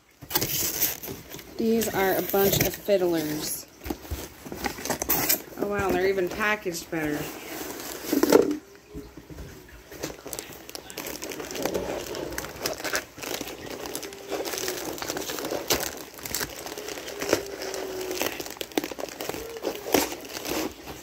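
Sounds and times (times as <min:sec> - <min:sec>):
foil liner crinkling: 0:00.2 - 0:08.7, 0:09.8 - 0:21.0.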